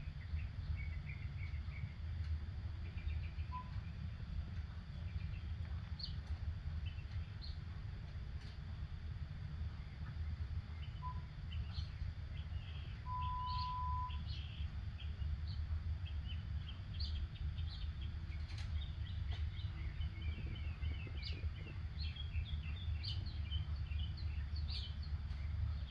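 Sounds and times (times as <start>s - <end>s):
songbirds chirping: 0.0s - 25.9s
steady low rumble: 0.0s - 25.9s
whistle-like tone: 13.1s - 14.2s.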